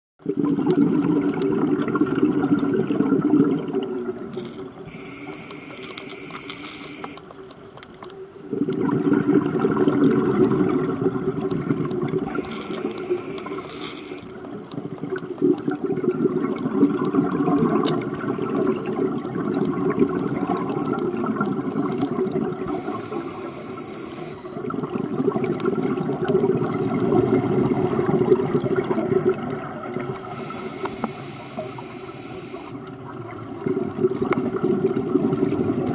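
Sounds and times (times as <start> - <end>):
exhaled bubbles rumbling: 0.2 - 5.1, 8.2 - 23.3, 24.5 - 32.0, 32.6 - 35.9
regulator inhalation hiss: 4.8 - 7.2, 12.3 - 14.3, 21.7 - 24.6, 26.6 - 27.5, 30.0 - 32.8.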